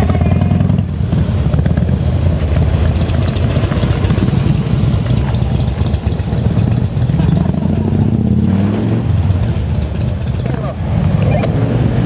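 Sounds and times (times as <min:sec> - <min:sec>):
motorcycle engine idling: 0:02.1 - 0:10.8.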